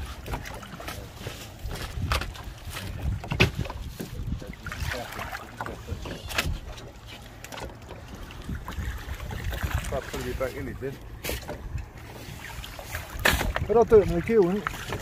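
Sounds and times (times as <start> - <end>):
fish thrashing and splashing: 0.0 - 15.0
sharp knocks: 1.7 - 4.1.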